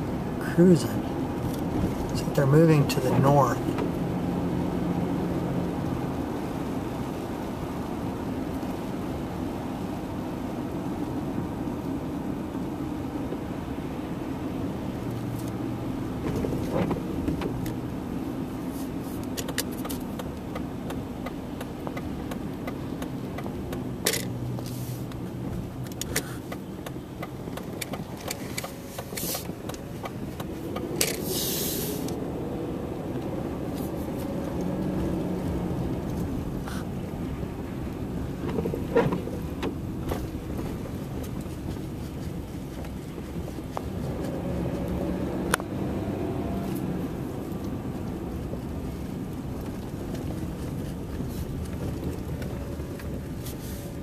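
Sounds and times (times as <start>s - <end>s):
car engine and tyre hum: 0.0s - 54.0s
brief hiss: 31.2s - 32.2s.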